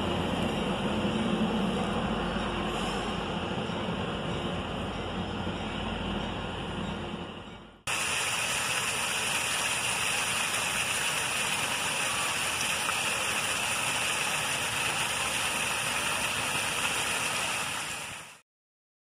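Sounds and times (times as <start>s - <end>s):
fountain jets splashing into pool: 7.9s - 18.4s.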